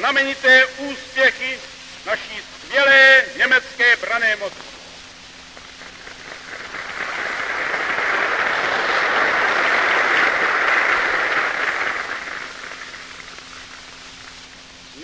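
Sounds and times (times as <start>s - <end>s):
large crowd applauding: 5.9s - 13.8s.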